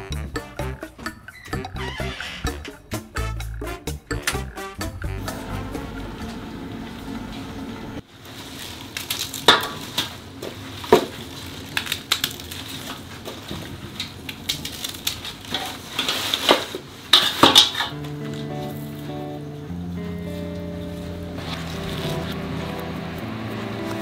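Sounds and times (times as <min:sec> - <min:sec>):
background music: 0:00.0 - 0:08.0, 0:17.9 - 0:24.0.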